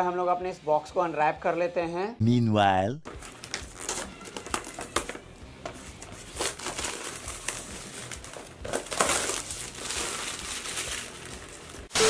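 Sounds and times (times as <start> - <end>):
plastic shrink-wrap tearing: 3.2 - 5.2, 6.1 - 12.0.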